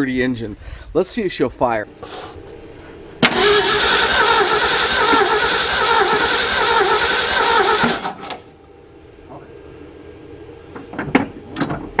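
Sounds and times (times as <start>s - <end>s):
engine cranking by starter: 3.2s - 8.5s.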